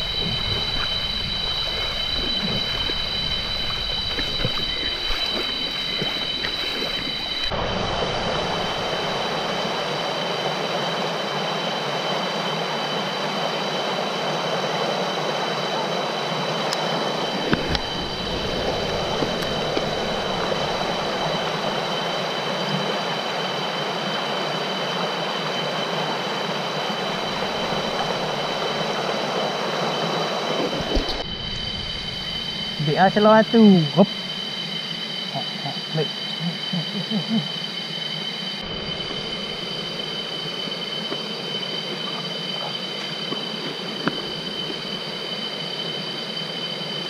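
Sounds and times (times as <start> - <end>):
stream rushing over rocks: 0.0 - 12.1, 13.9 - 31.3.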